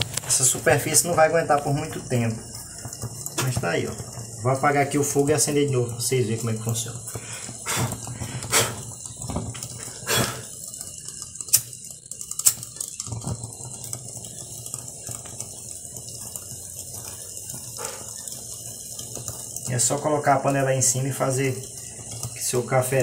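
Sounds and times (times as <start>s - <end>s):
stove burning with soft hiss: 0.0s - 23.0s
sharp clicks and knocks: 10.8s - 15.6s.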